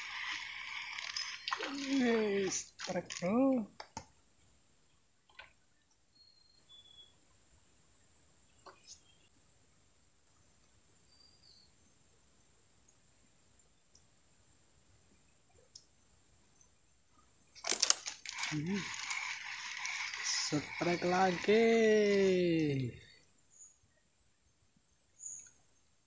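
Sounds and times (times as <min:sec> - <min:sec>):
insects shrilling: 0:00.0 - 0:03.6, 0:17.5 - 0:23.2.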